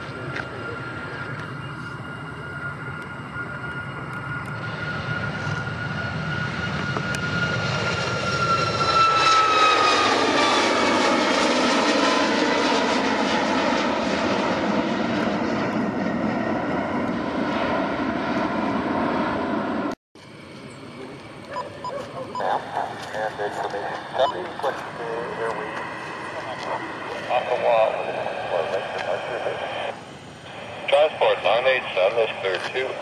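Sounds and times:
jet airliner passing: 0.0 - 33.0
steady jet rumble: 22.6 - 33.0.

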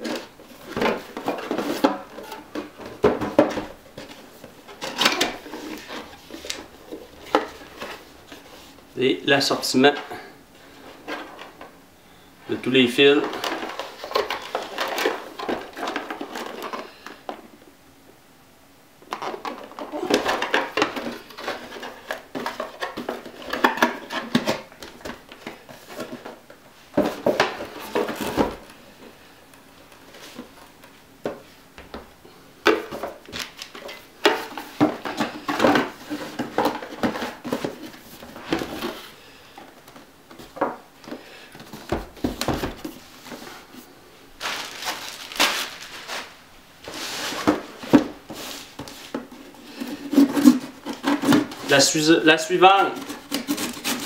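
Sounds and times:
cardboard packaging knocks and rustles: 0.1 - 4.2, 41.6 - 43.5, 44.4 - 49.4
knife slitting tape on box: 53.0 - 54.0.

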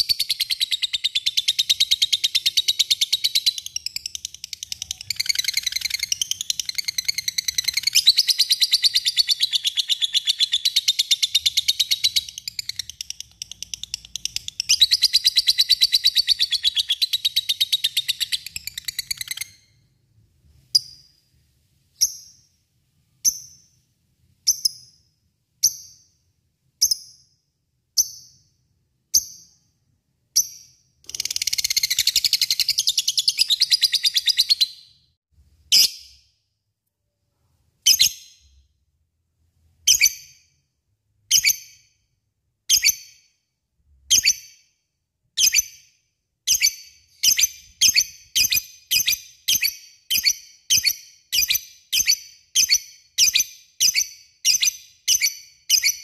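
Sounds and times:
sharp bird chirps: 0.0 - 36.4, 45.4 - 56.0.

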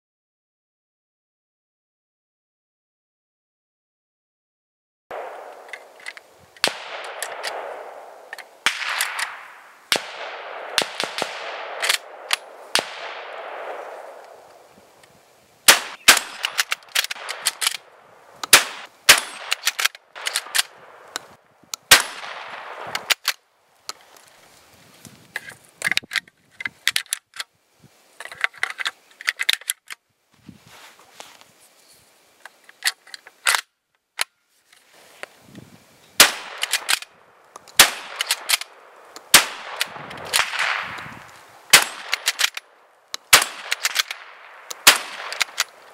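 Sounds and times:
shotgun shots: 5.1 - 5.9, 6.6 - 14.4, 15.7 - 17.9, 18.5 - 21.1, 21.9 - 23.3, 36.2 - 37.1, 37.8 - 42.6, 43.3 - 45.8
metallic clicks of gun bolt: 5.5 - 7.7, 11.8 - 12.5, 16.0 - 21.9, 22.9 - 24.2, 25.4 - 27.5, 28.2 - 30.0, 32.4 - 34.4, 36.4 - 45.9.

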